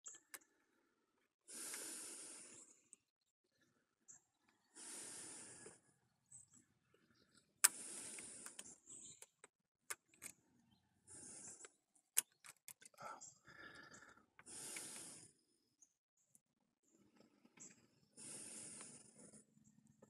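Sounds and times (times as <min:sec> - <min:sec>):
person breathing slowly: 0:00.4 - 0:03.0, 0:04.5 - 0:09.3, 0:11.0 - 0:12.3, 0:12.9 - 0:15.5, 0:18.0 - 0:19.7
faint clicks: 0:06.4 - 0:10.4, 0:11.2 - 0:15.3.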